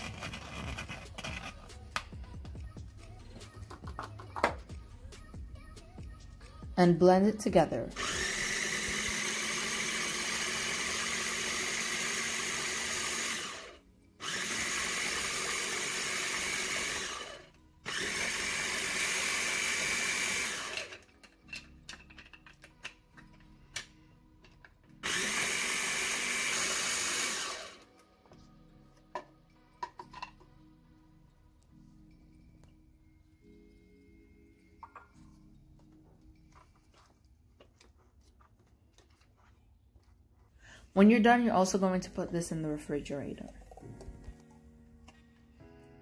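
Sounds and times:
food processor motor: 0.0s - 1.5s, 8.0s - 21.2s, 25.0s - 28.0s.

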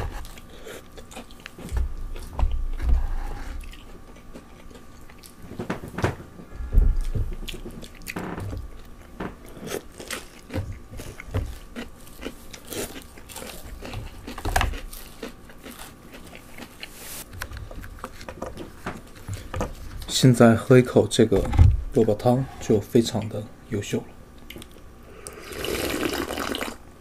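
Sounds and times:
chewing crunchy food: 0.0s - 5.6s, 7.0s - 20.1s.

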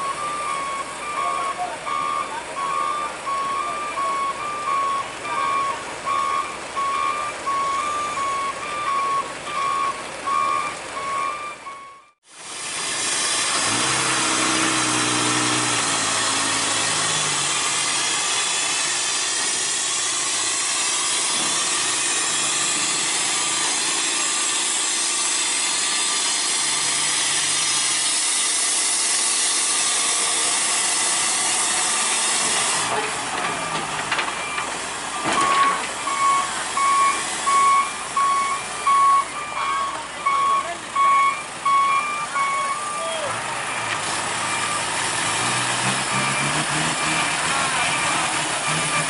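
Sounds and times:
reversing alarm beeping: 0.0s - 12.2s, 33.5s - 49.0s
heavy vehicle engine rumble: 0.0s - 49.0s.

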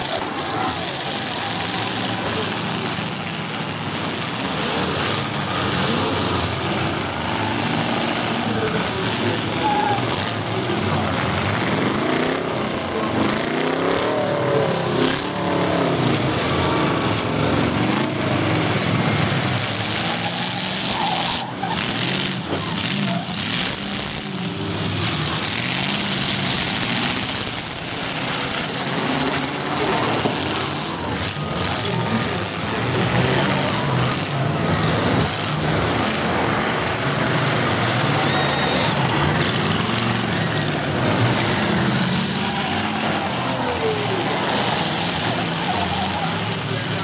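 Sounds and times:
car engines revving: 0.0s - 47.0s.

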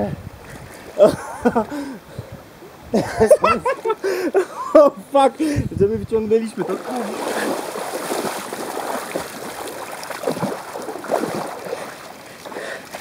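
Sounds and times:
heavy wading steps: 0.4s - 13.0s
water splashing around legs: 6.5s - 13.0s.

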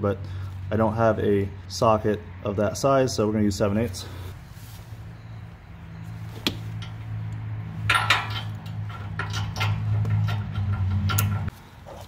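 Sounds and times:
metal socket clinking and scraping: 7.9s - 11.5s.

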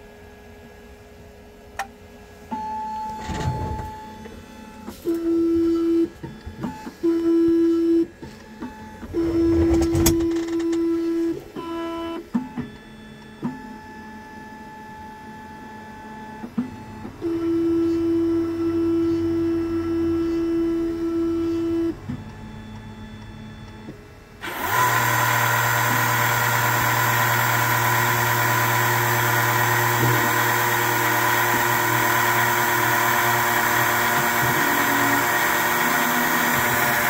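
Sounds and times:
key-cutting machine motors whining: 3.1s - 13.4s, 24.4s - 37.0s.

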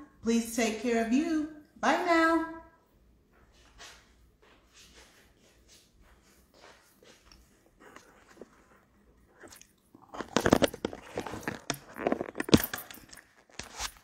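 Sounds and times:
rubbing and crackling on microphone: 4.7s - 14.0s.

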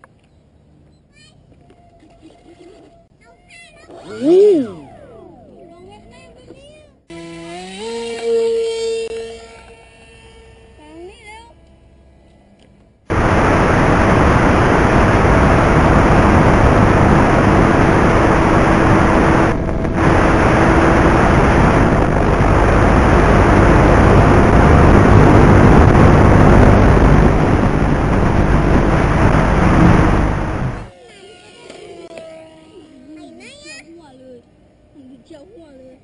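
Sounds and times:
faint steady hum: 9.8s - 36.0s
loud rushing noise: 13.1s - 30.9s.

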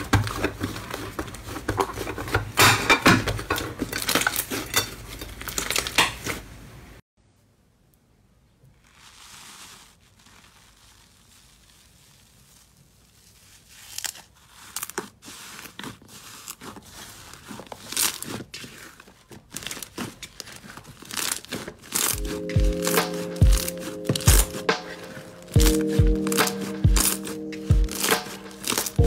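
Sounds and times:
slime crackling and popping: 9.0s - 29.0s.

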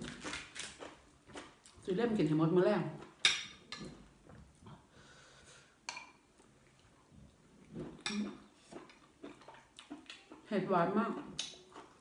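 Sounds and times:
mouth sounds of eating: 6.4s - 12.0s.

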